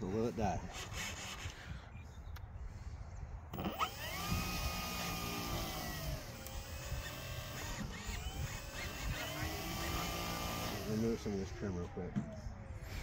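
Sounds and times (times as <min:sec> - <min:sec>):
model plane motor and propeller whine: 0:03.5 - 0:12.2.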